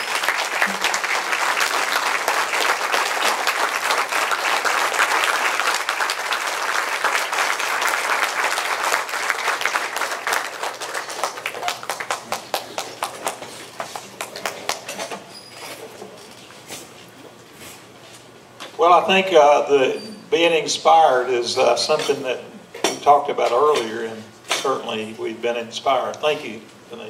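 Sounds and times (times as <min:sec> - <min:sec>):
audience applauding: 0:00.0 - 0:14.9.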